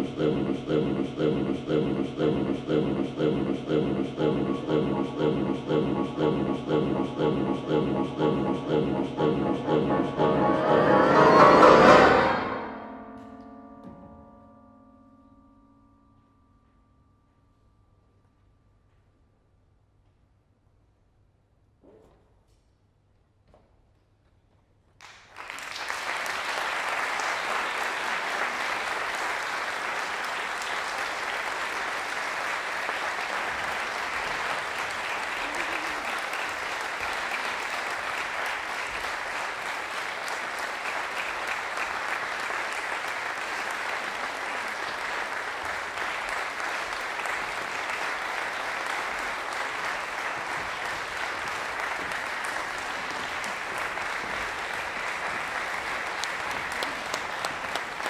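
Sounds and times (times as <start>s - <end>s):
audience applause: 0.0s - 12.4s, 25.0s - 58.0s.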